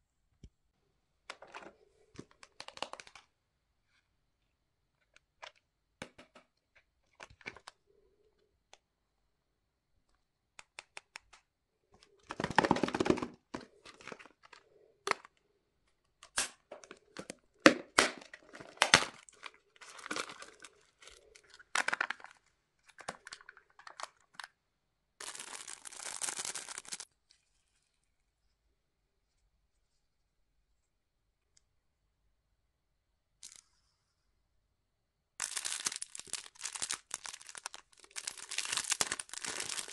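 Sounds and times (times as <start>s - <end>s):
plastic bag crinkling: 18.4s - 22.4s, 25.2s - 27.1s, 35.4s - 39.9s
plastic film tearing and crinkling: 25.2s - 27.1s, 35.4s - 39.9s.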